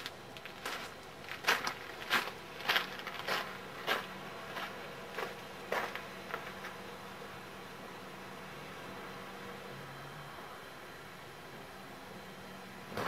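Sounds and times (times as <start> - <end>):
crackling and scraping at firebox: 0.0 - 6.8
faint steady hum: 0.0 - 13.0.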